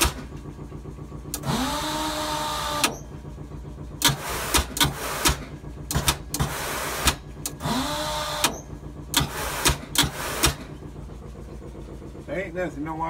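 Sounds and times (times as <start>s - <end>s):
low steady hum: 0.0s - 13.0s
motor whining: 1.3s - 3.2s, 4.0s - 10.7s
sharp mechanical clanks: 2.6s - 3.2s, 4.0s - 10.8s.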